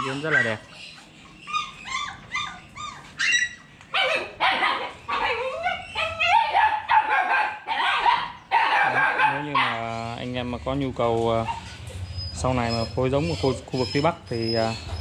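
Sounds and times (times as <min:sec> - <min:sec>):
dogs whining and yelping: 0:00.0 - 0:10.0, 0:11.2 - 0:15.0.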